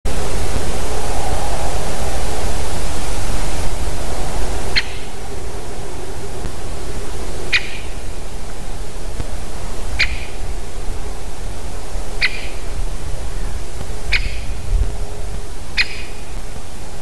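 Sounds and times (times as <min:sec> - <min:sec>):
steady hiss: 0:00.1 - 0:17.0
woodpecker calls: 0:04.7 - 0:05.2, 0:06.9 - 0:08.5, 0:09.9 - 0:10.5, 0:12.1 - 0:12.8, 0:14.1 - 0:14.6, 0:15.7 - 0:16.4.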